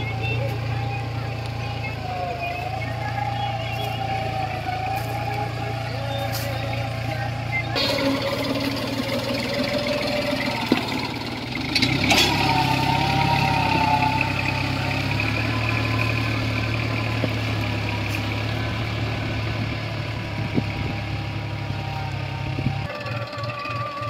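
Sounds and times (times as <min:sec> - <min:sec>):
tractor diesel engine under load: 0:00.0 - 0:24.0.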